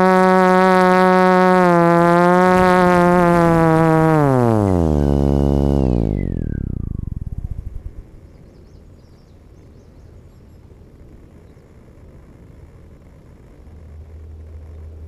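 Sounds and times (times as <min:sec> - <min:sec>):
motor whine winding down: 0:00.0 - 0:08.4.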